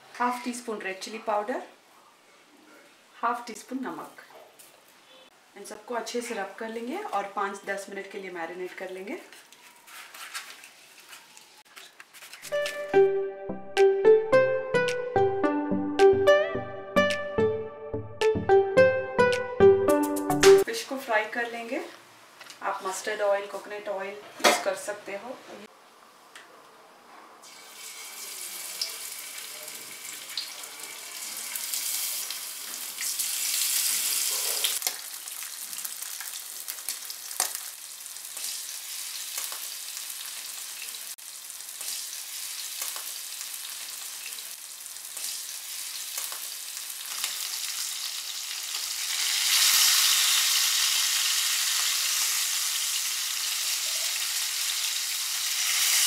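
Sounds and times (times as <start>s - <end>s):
fish sizzling in hot oil: 27.4s - 56.0s.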